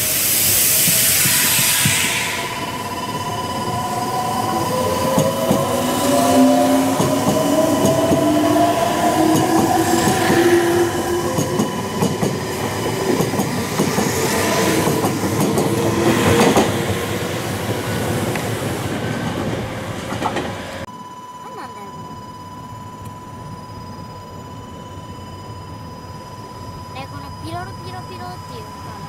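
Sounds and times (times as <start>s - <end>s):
electric train motor whine: 0.0s - 29.0s
wheels clacking over rail joints: 11.1s - 20.9s.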